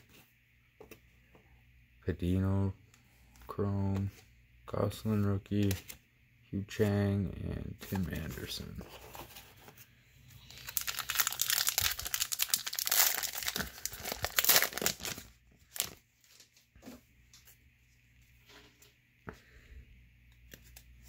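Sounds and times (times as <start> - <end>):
plastic wrapper tearing and crinkling: 10.5 - 16.4.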